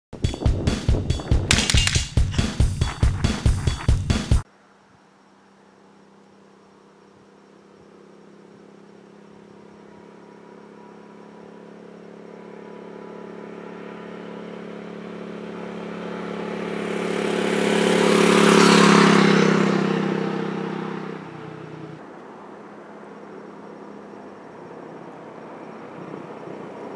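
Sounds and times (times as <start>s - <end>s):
tyre and wind rush: 0.2s - 4.4s
motorcycle passing by: 5.9s - 26.9s.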